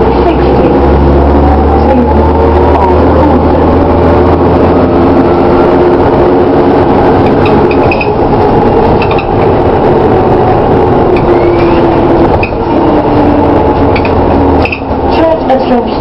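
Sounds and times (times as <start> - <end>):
bus engine drone inside cabin: 0.0 - 16.0.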